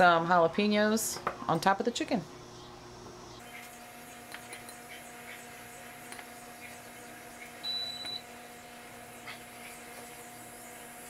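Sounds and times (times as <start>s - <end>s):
low electrical hum: 0.0s - 11.0s
high electronic beep: 7.6s - 8.2s.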